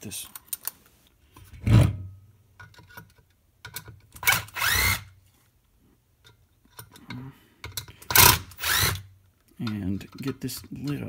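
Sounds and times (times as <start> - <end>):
impact driver motor whirring: 4.2 - 5.1, 8.2 - 9.0
handling clicks and knocks: 9.5 - 11.0.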